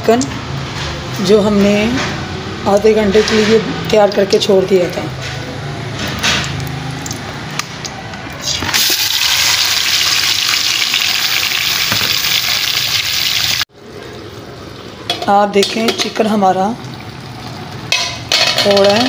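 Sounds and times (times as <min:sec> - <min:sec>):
chicken sizzling in hot fat: 0:08.4 - 0:13.7.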